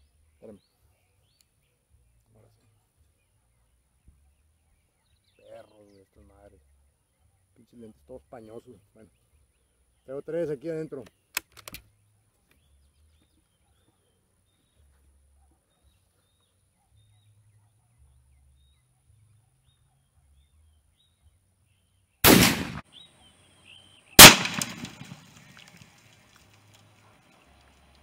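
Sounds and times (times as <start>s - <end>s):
light clicks: 11.0s - 11.9s
rifle shots with echo: 22.2s - 22.9s, 24.2s - 25.8s.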